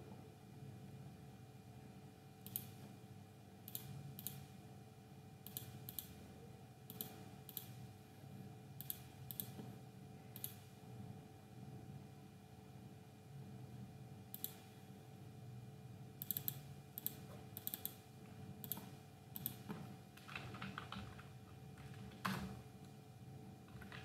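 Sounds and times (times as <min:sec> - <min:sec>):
faint low hum: 0:00.0 - 0:24.0
computer mouse clicking: 0:02.4 - 0:02.9, 0:03.7 - 0:04.5, 0:05.4 - 0:06.2, 0:06.9 - 0:07.8, 0:08.8 - 0:09.7, 0:10.4 - 0:10.7, 0:14.3 - 0:14.7, 0:16.2 - 0:18.0, 0:18.6 - 0:22.4.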